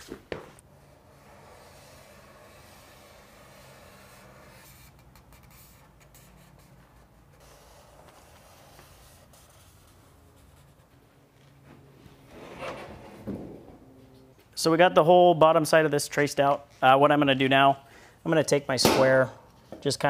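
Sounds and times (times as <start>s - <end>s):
marker scratching on metal: 0.8s - 10.9s.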